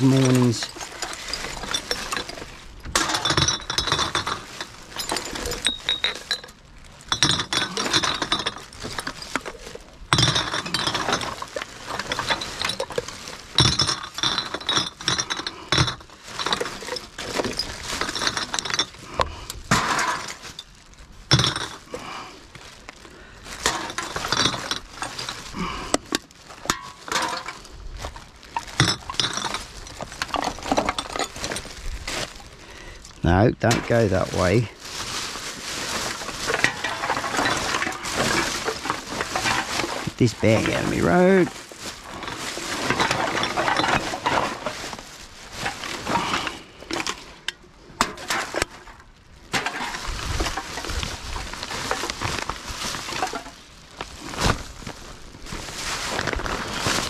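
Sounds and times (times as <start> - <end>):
glass bottles clinking: 0.0 - 22.1, 23.5 - 32.4, 33.2 - 45.0, 45.6 - 53.6.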